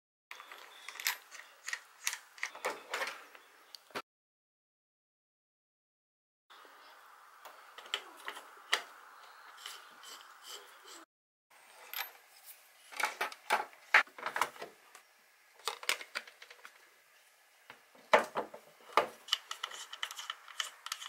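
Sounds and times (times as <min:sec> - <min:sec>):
plastic parts clicking and tapping: 0:15.6 - 0:16.8.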